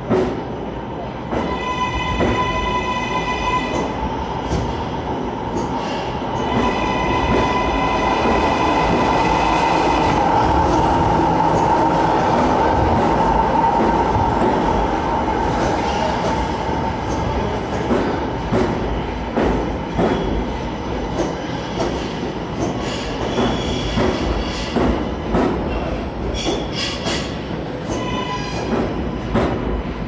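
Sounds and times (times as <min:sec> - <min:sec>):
subway train rumbling: 0:00.0 - 0:30.0.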